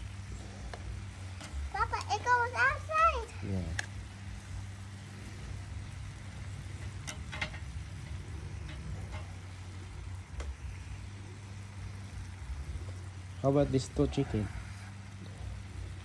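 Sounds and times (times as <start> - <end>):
steady low hum: 0.0 - 16.0
metal tongs clicking on grill: 3.7 - 4.0, 6.8 - 9.5.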